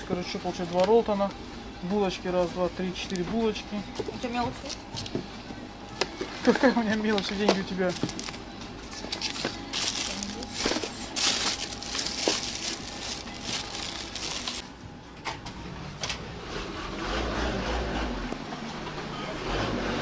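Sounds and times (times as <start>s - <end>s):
plastic bag rustling: 7.2s - 14.6s.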